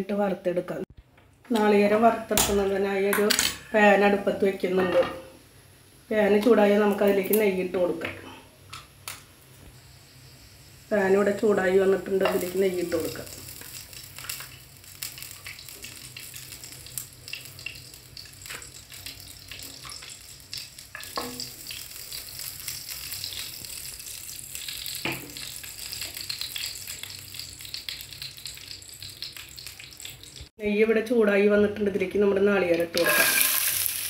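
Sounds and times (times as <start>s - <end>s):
butter sizzling in frying pan: 9.0s - 30.5s, 33.0s - 34.0s.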